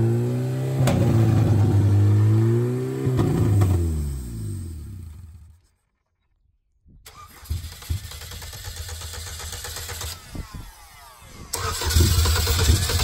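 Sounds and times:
car engine cranking and sputtering: 7.0 - 13.0.

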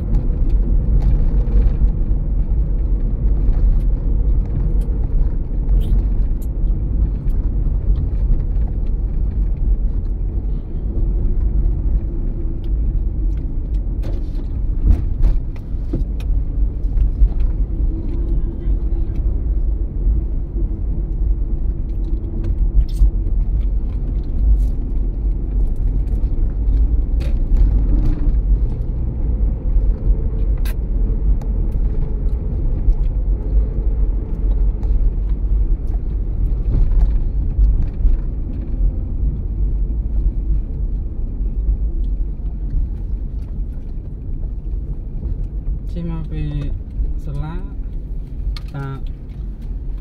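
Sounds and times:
low road rumble in car cabin: 0.0 - 50.0.

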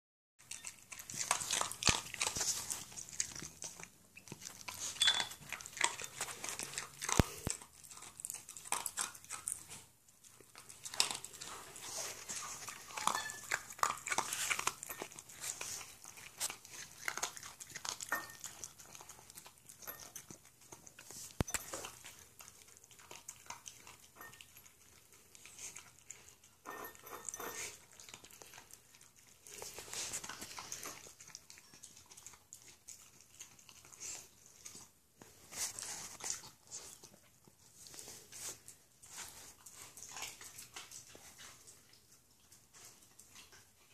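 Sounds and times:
dog crunching food from metal bowl: 0.4 - 34.8.

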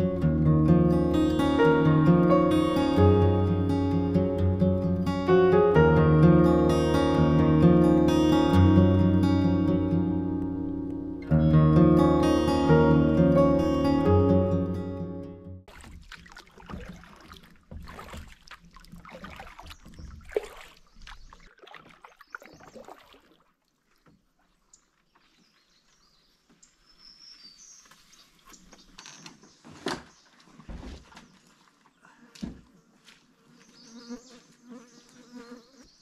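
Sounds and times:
water sloshing against hull: 15.6 - 26.5, 29.8 - 33.0
paddle strokes in water: 15.6 - 34.6
faint bird chirps: 33.6 - 36.0.

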